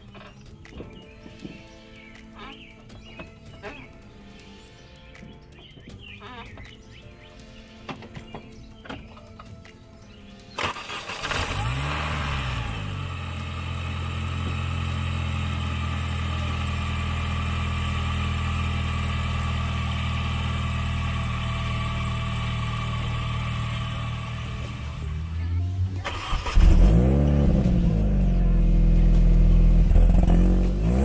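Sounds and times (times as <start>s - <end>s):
car engine starting and idling: 10.6s - 31.0s.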